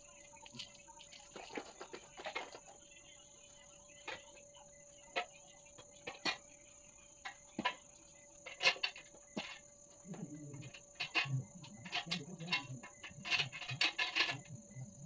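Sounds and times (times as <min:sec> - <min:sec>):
crickets trilling: 0:00.0 - 0:15.0.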